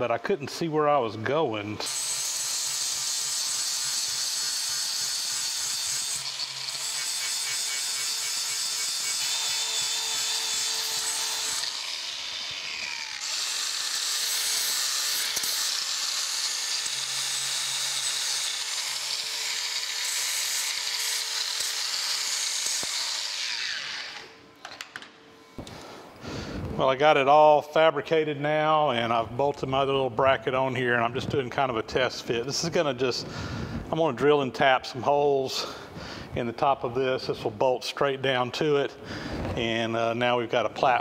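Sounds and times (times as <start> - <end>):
angle grinder grinding metal: 1.8 - 24.4.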